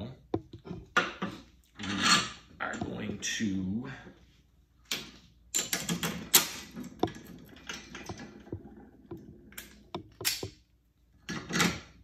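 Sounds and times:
metal parts clicking and clinking: 4.9 - 8.5.

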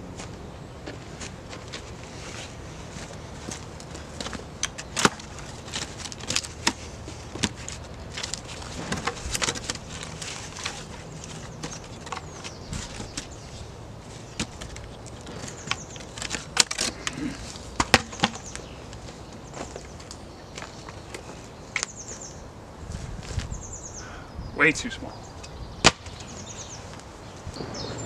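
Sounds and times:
wooden logs knocking and scraping: 3.0 - 21.9
footsteps on dry ground: 17.4 - 21.6.

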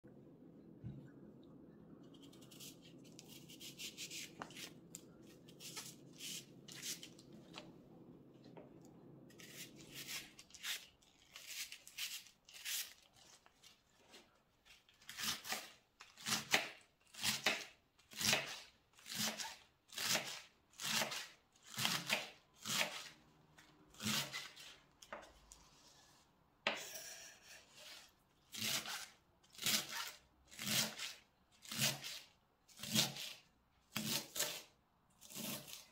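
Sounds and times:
knife scrape: 2.2 - 4.8, 5.5 - 7.2, 9.4 - 13.4, 25.6 - 29.1, 34.0 - 35.9.

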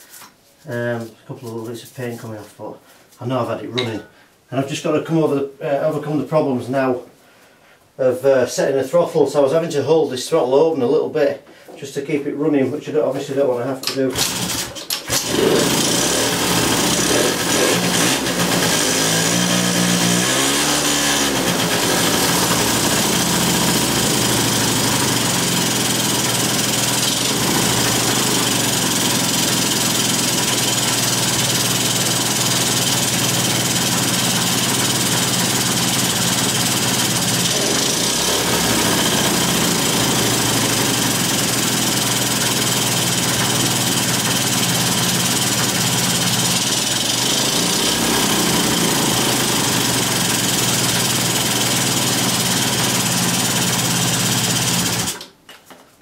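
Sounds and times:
scooter engine running: 14.1 - 55.2.

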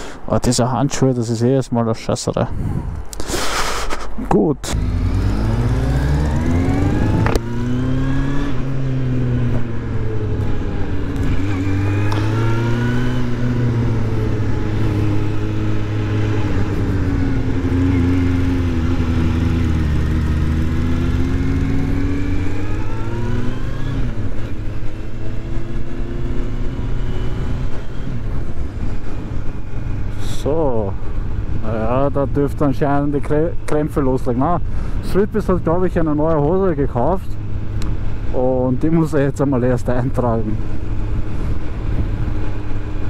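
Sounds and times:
wind noise: 2.4 - 4.3, 40.8 - 42.9
motorcycle engine revving: 4.7 - 32.7.

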